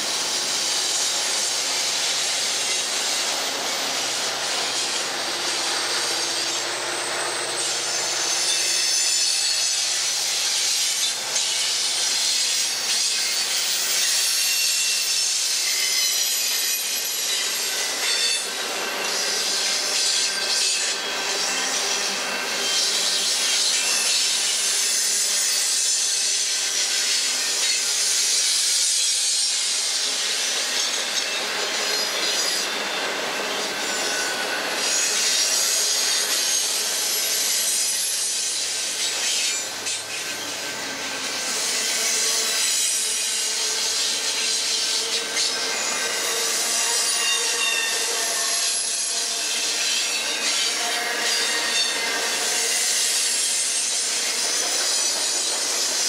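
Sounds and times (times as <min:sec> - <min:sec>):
freight cars rolling on rails: 0:00.0 - 0:56.0
high-pitched wheel squeal: 0:05.7 - 0:09.8, 0:14.0 - 0:26.6, 0:30.8 - 0:36.8, 0:41.7 - 0:56.0.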